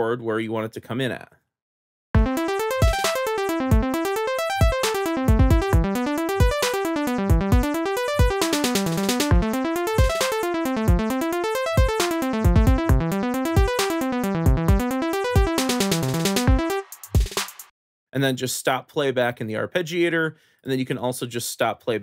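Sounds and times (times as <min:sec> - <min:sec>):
rapid synth arpeggios: 0:02.2 - 0:17.0.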